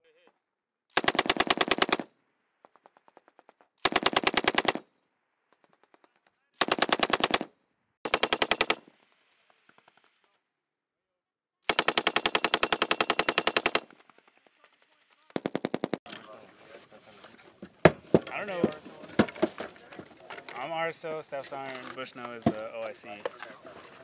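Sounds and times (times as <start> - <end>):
machine gun bursts: 1.0 - 2.1, 3.8 - 4.8, 6.6 - 8.8, 11.7 - 14.5, 15.4 - 16.0
distant gunfire: 5.6 - 10.3.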